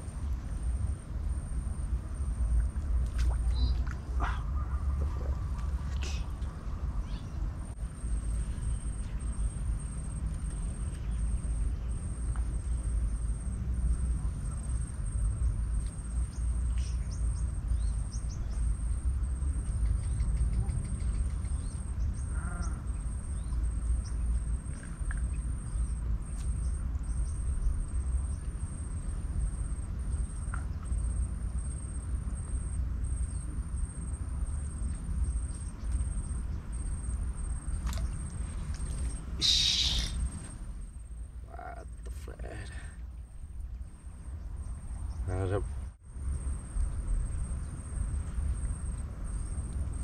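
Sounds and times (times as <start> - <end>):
faint bird chirps: 2.4 - 31.9, 32.5 - 40.6
pitched animal call: 22.3 - 22.9, 39.4 - 40.3.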